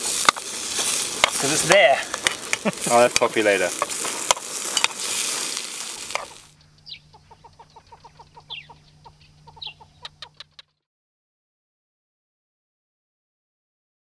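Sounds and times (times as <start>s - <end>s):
sausages sizzling in a frying pan: 0.0s - 6.6s
low steady hum: 4.6s - 10.8s
rapid bird-like calls: 6.0s - 10.8s.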